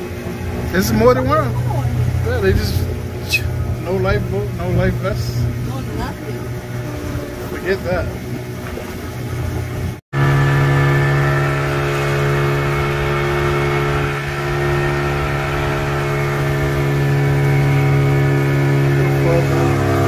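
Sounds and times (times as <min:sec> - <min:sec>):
motorboat engine droning: 0:00.0 - 0:20.0.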